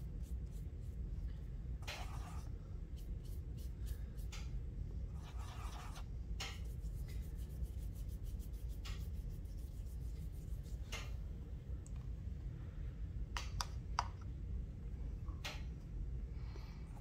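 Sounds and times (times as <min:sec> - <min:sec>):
paintbrush scrubbing paint cake: 0:00.0 - 0:11.3
brush strokes on paper: 0:01.8 - 0:04.3, 0:05.1 - 0:11.1.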